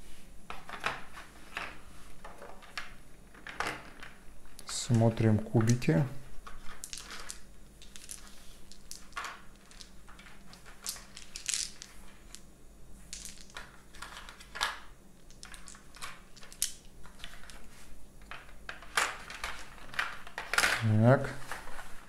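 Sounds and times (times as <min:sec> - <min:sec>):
plastic dice clicking: 0:06.5 - 0:12.4, 0:13.2 - 0:17.6.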